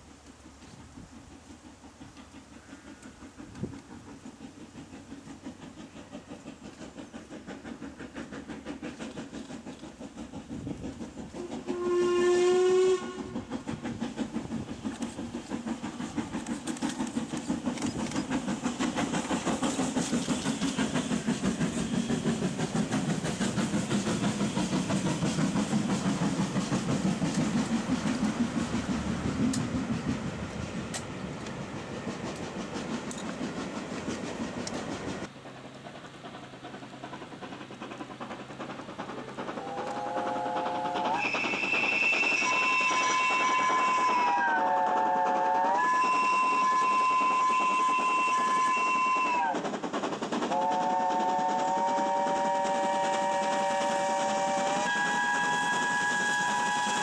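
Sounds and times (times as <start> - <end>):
steam locomotive exhaust beats: 0.0 - 57.0
train running noise: 0.0 - 57.0
steam whistle blast: 11.4 - 13.4, 39.6 - 49.6, 50.5 - 57.0.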